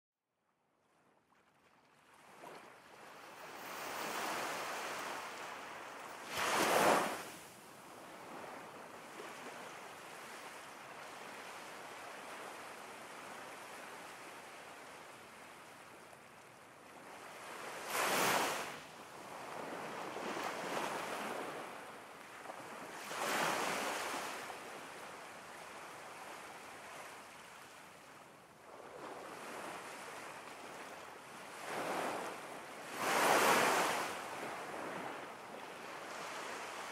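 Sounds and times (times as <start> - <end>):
waves breaking: 3.4 - 7.4, 17.4 - 18.8, 32.9 - 34.3.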